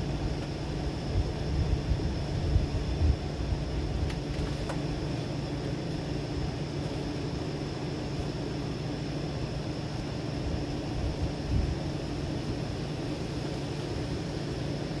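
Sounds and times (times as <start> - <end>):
strong wind rushing: 0.8 - 4.1.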